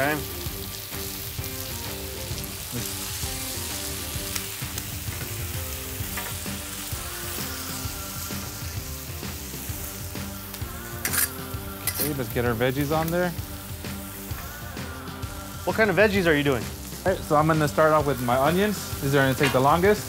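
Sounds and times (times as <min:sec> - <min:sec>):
steak sizzling: 0:00.0 - 0:20.0
spatula clicks and scrapes: 0:11.0 - 0:12.1.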